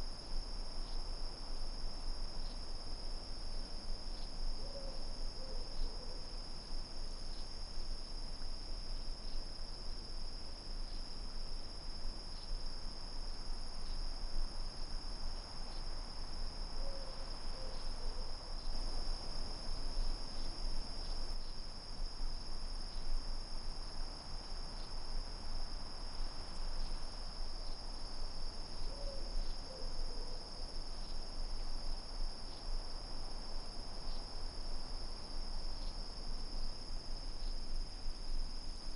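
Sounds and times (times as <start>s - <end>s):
crickets chirring: 0.0s - 38.9s.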